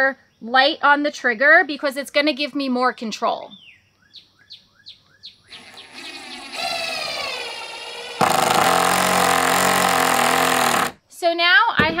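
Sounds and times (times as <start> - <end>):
impact driver motor whirring: 5.5 - 11.0
impact driver rapid hammering: 8.2 - 11.0.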